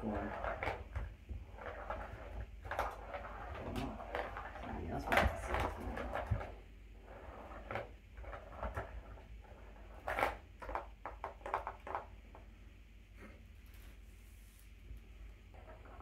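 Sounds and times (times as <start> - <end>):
paws tapping plastic toy track: 0.0 - 6.5, 10.0 - 12.4.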